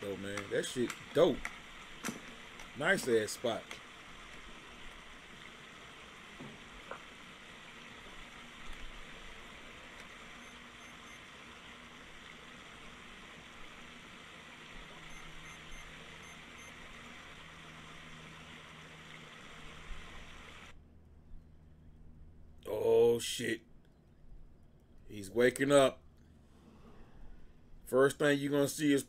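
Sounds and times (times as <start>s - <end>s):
microphone hiss: 0.0s - 21.2s
faint low hum: 0.0s - 29.0s.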